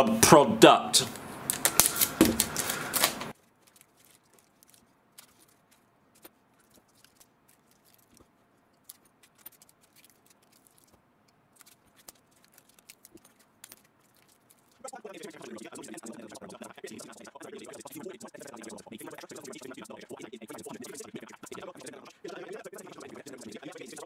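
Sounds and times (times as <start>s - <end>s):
tape crackling and clicking: 1.4s - 24.0s
faint scattered ticks: 11.6s - 24.0s.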